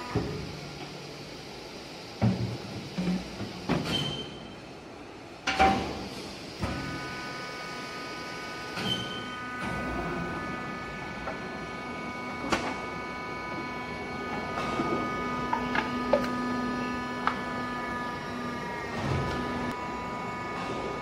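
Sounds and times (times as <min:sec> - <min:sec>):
steady multi-tone whine: 0:06.8 - 0:21.0.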